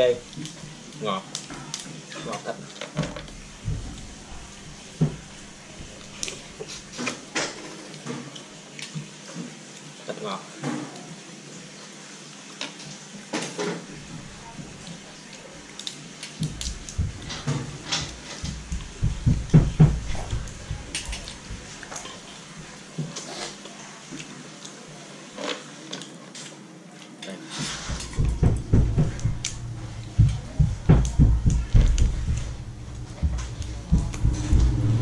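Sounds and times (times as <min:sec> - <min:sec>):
dull low thumps: 0:03.3 - 0:06.2, 0:16.4 - 0:21.9, 0:27.9 - 0:35.0
chewing: 0:14.0 - 0:35.0.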